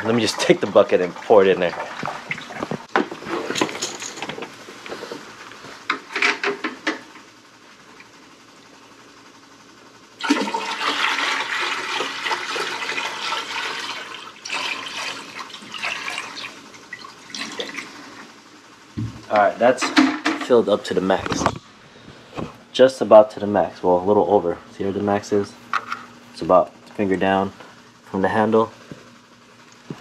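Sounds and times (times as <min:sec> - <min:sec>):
water pouring into tank: 0:10.2 - 0:18.2.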